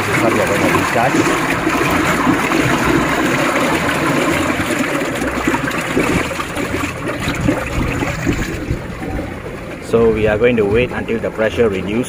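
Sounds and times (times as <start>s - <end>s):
gas bubbling in water: 0.0s - 11.4s.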